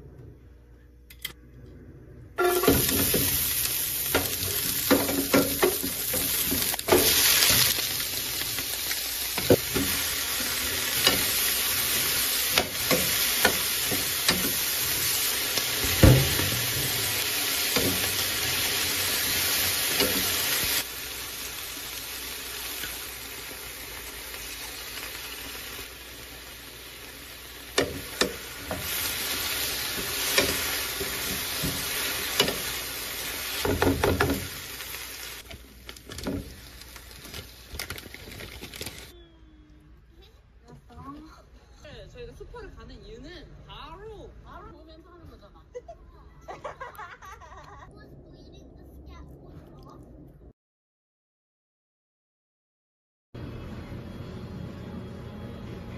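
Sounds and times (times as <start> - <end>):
vegetables sizzling in oil: 2.4 - 39.1.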